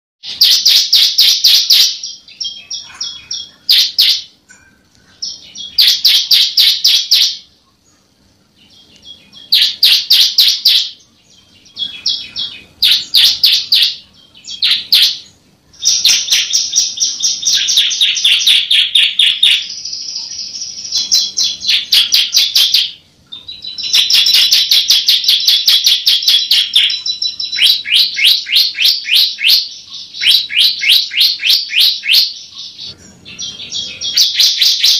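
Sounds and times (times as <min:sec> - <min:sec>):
bird singing high sharp notes: 0:08.6 - 0:34.9.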